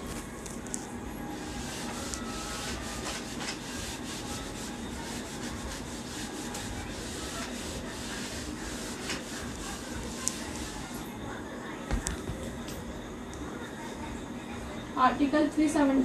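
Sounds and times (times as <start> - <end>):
duster rubbing on whiteboard: 1.3 - 11.1.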